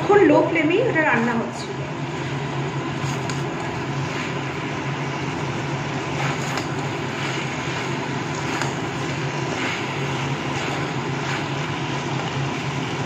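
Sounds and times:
curry sizzling in pan: 0:02.0 - 0:13.0
spatula scraping pan: 0:06.0 - 0:13.0.

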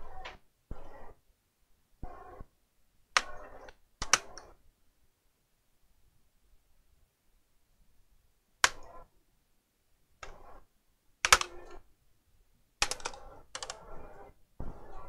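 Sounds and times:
plastic clips snapping: 0:11.2 - 0:11.6, 0:12.8 - 0:13.8.

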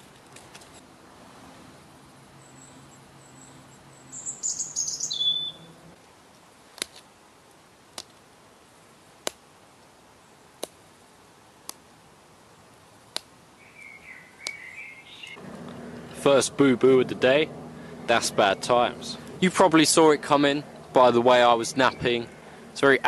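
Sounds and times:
bird chirping: 0:02.3 - 0:05.9, 0:13.6 - 0:15.4.

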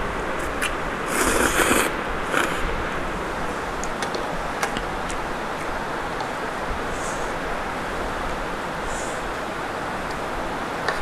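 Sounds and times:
slurping noodles: 0:01.1 - 0:02.8.

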